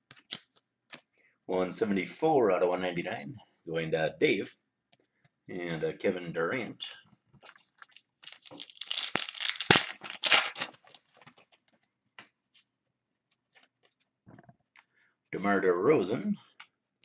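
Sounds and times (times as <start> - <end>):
cards rustling and clicking: 0.0 - 1.1, 7.4 - 12.7
wrapper tearing and crinkling: 7.5 - 11.6.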